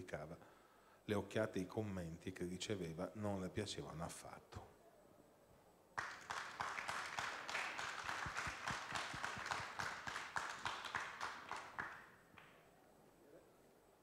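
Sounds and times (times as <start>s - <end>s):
audience applauding: 6.0s - 12.5s.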